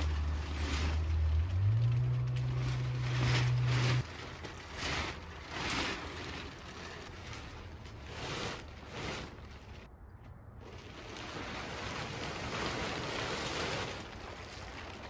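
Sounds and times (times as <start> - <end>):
low steady hum: 0.0 - 11.6
plastic tarp rustling: 0.0 - 15.0.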